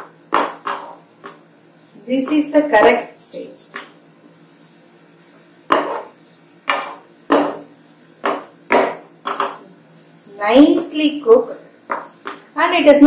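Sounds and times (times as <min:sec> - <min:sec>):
spatula scraping a frying pan: 0:00.0 - 0:01.4, 0:05.7 - 0:10.0.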